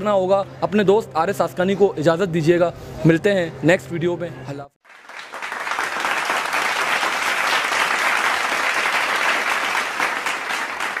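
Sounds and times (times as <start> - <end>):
crowd clapping: 4.8 - 11.0.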